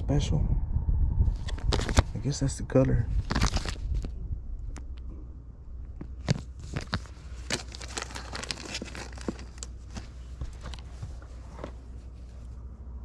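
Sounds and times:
steady low rumble: 0.0s - 13.0s
rustling and crackling: 1.3s - 2.2s, 3.1s - 5.1s, 5.8s - 12.7s.

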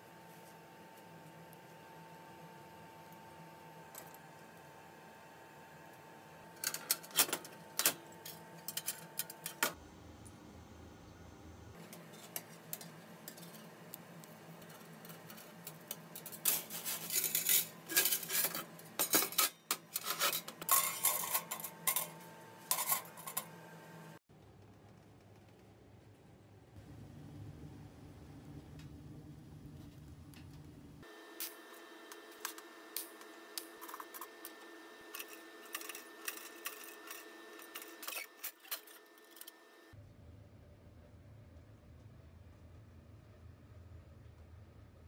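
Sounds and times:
metal wire racks clinking: 14.7s - 23.5s.

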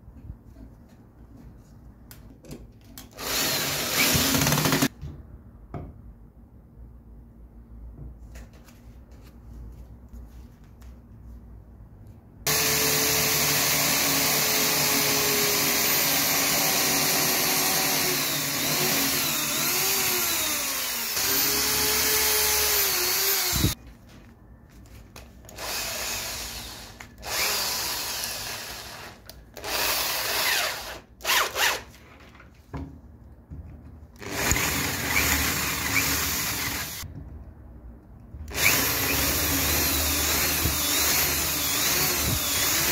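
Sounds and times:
electric drill boring into wood: 3.2s - 4.9s, 12.5s - 23.8s, 25.5s - 31.8s, 34.2s - 37.0s, 38.5s - 42.9s.

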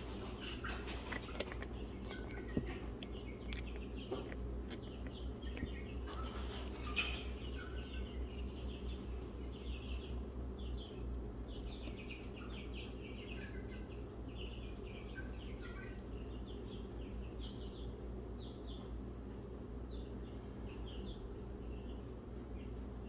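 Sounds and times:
small birds chirping: 0.0s - 23.0s
steady low hum: 0.0s - 23.0s.

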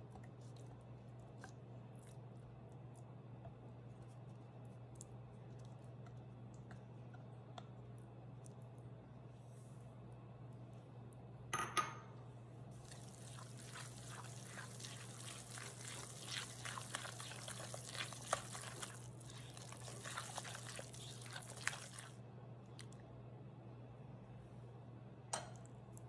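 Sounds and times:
sugar pouring hiss: 12.8s - 22.1s
whisk scraping in glass bowl: 13.3s - 22.1s.

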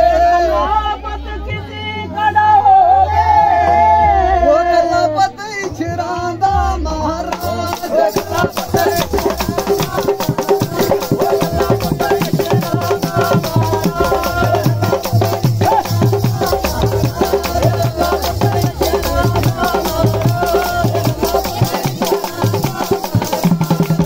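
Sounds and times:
hand drum beating: 7.3s - 24.0s
jingling metal percussion: 7.3s - 24.0s.

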